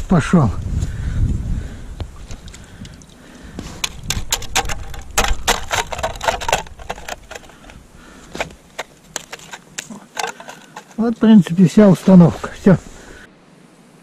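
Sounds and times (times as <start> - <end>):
sharp clicks and knocks: 3.8 - 7.8, 8.4 - 11.0.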